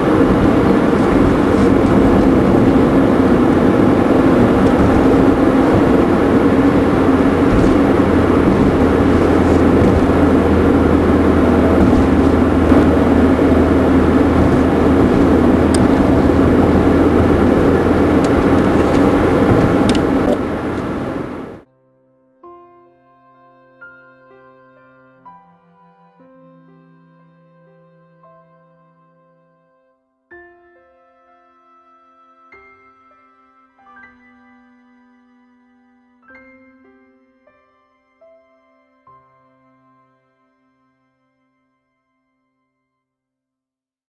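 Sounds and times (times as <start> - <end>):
loud mechanical rumble: 0.0 - 21.6
low hum: 0.0 - 21.6.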